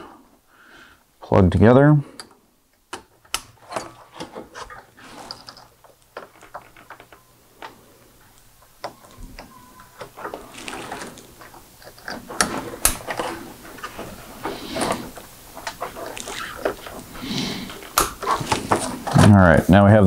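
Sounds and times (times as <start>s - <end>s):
cable rustling: 2.2s - 19.4s.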